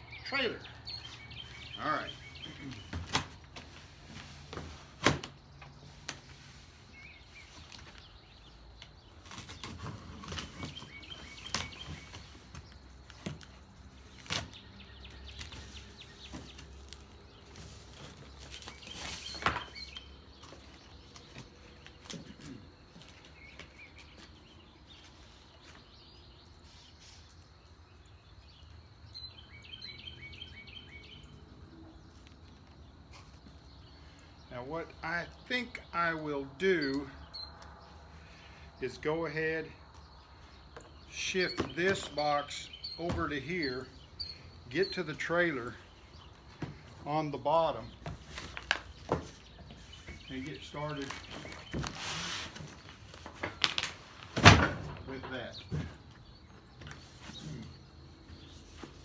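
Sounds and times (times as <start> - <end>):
birds chirping: 0.0 - 59.0.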